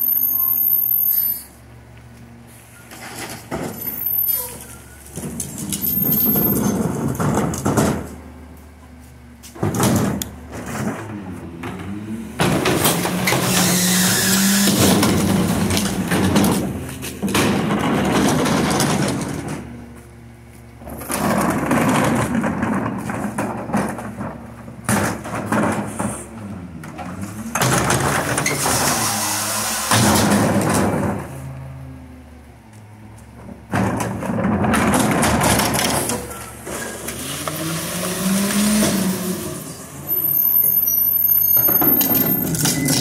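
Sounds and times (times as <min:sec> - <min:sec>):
plastic carts banging: 0:04.4 - 0:08.3, 0:09.6 - 0:19.8, 0:20.8 - 0:26.3, 0:26.9 - 0:31.4, 0:33.4 - 0:39.3, 0:41.8 - 0:43.0
garbage truck engine revving: 0:09.7 - 0:19.8, 0:33.7 - 0:43.0.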